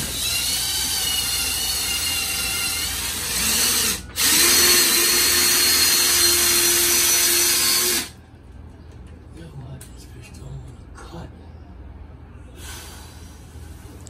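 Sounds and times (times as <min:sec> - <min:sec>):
power drill drilling into wall: 0:00.0 - 0:08.1.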